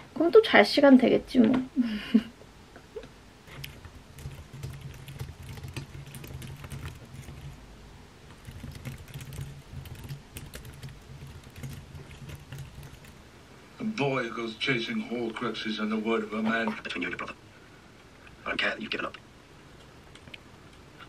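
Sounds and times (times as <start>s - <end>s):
typing on computer keyboard: 3.5s - 7.6s, 8.3s - 13.2s.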